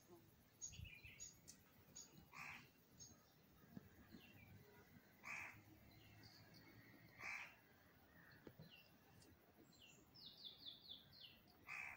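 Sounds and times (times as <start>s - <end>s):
bird harsh call: 2.3s - 2.7s, 5.2s - 5.6s, 7.2s - 7.6s, 11.6s - 11.9s.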